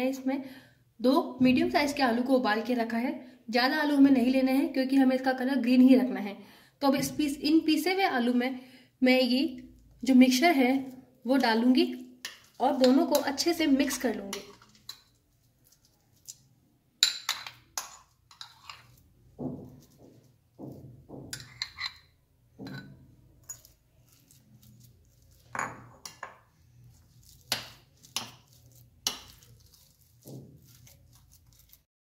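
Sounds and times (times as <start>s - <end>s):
metal spoon clinking on glass bowl: 22.6s - 23.8s.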